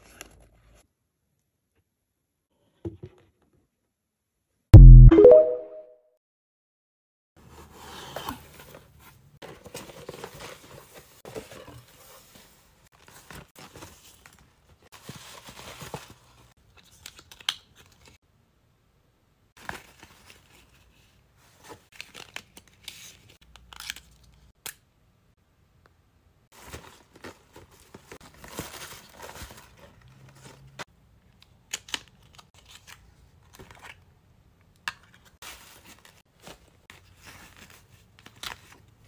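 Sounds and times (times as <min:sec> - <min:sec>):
paper rustling and crinkling: 0:08.5 - 0:18.2, 0:19.6 - 0:24.5, 0:26.5 - 0:30.9, 0:35.1 - 0:39.0.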